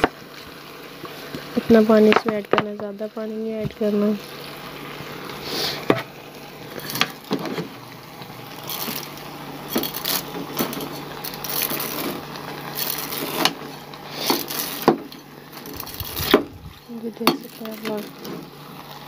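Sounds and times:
metal spoon scraping a pot: 0:09.7 - 0:16.4.

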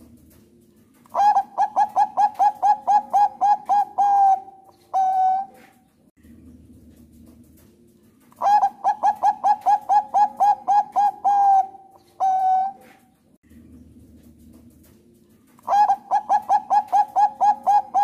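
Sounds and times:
dove cooing: 0:01.1 - 0:05.9, 0:08.3 - 0:13.2, 0:15.6 - 0:18.0.

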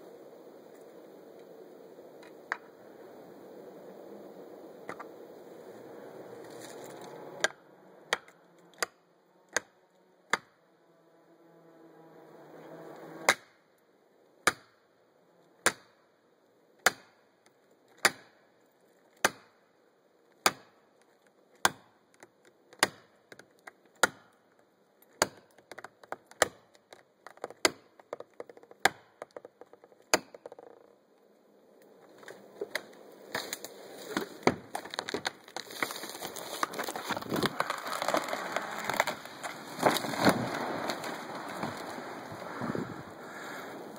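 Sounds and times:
wood cracking: 0:25.1 - 0:31.0, 0:32.1 - 0:43.5
axe striking wedges: 0:30.1 - 0:30.4
rush of noise: 0:36.2 - 0:43.9.

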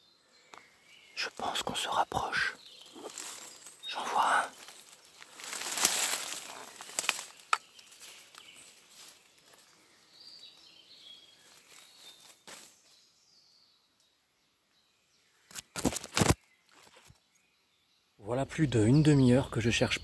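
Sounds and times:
leaves and branches rustling: 0:01.2 - 0:13.0, 0:15.5 - 0:17.2
footsteps through undergrowth: 0:02.6 - 0:13.0, 0:15.5 - 0:17.2
twig snaps: 0:02.8 - 0:03.6, 0:05.4 - 0:08.4.

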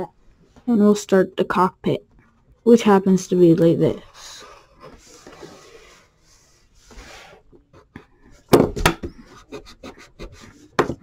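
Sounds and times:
pencil scratching on paper: 0:09.0 - 0:11.0.

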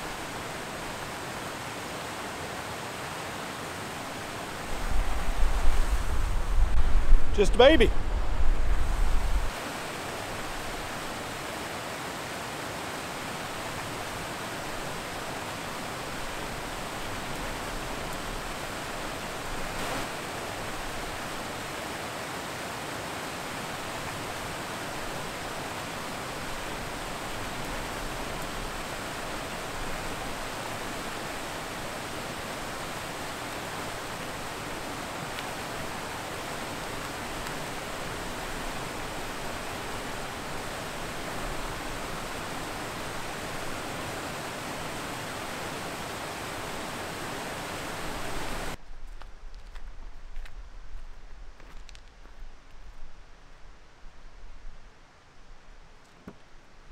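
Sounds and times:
water rushing over dam spillway: 0:00.0 - 0:06.2, 0:09.5 - 0:48.8.

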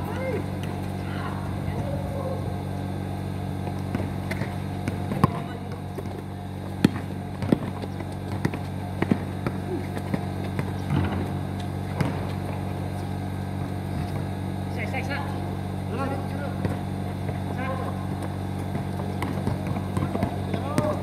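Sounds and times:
low hum: 0:00.0 - 0:21.0
basketball bouncing on concrete: 0:03.5 - 0:14.4, 0:16.1 - 0:21.0.

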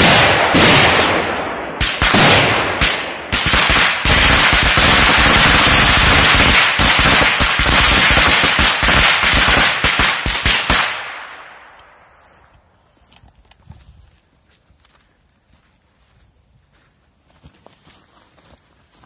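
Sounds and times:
firecrackers banging: 0:00.0 - 0:11.2.

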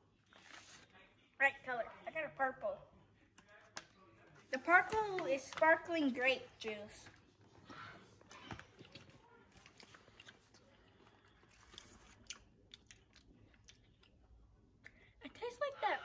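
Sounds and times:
chewing gummy candy: 0:08.2 - 0:15.0.

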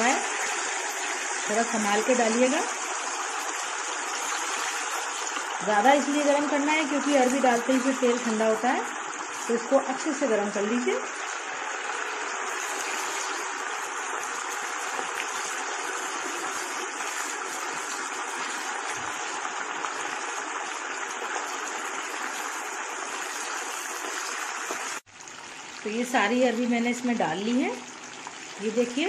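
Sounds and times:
deep-frying sizzle in oil: 0:00.0 - 0:29.0.

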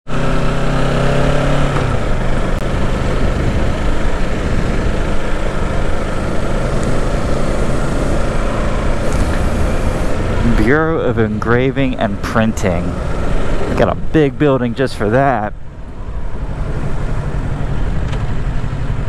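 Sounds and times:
motorcycle engine pulling away: 0:00.1 - 0:10.8
wind noise on microphone: 0:01.8 - 0:10.6.

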